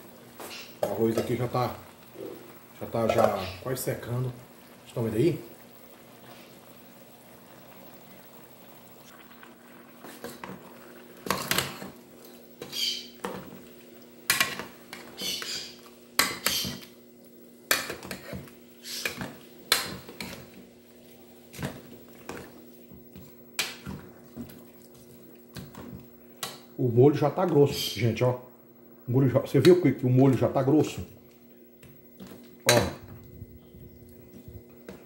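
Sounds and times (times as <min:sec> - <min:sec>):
sauce splashing: 0:08.8 - 0:14.2.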